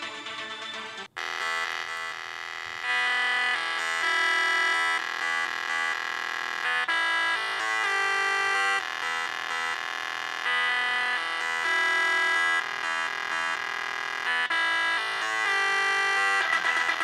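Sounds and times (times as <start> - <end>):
synth-lead music on phone speaker: 0.0 - 17.0.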